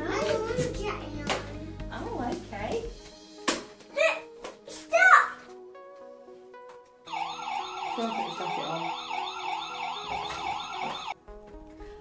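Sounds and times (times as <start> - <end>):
toy fire engine siren: 7.1 - 11.2.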